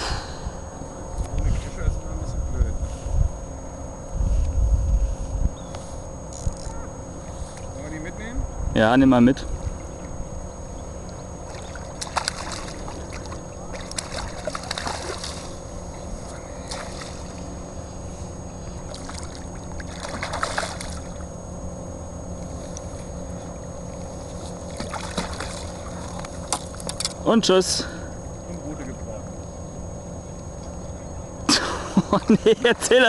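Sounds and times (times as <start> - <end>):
wind rumble on microphone: 0.0 - 3.5, 4.1 - 5.7
fish splashing in water: 11.4 - 15.6, 18.9 - 21.3, 24.6 - 26.8.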